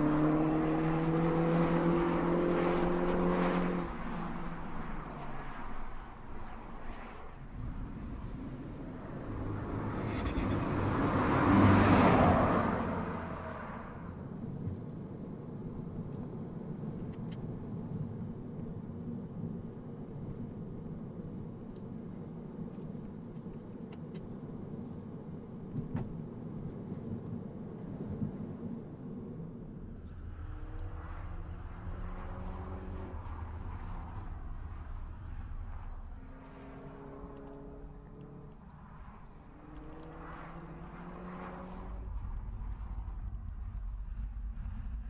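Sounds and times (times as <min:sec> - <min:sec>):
car driving past: 0:00.0 - 0:14.2, 0:29.8 - 0:43.4
engine and road hum in cabin: 0:00.0 - 0:45.0.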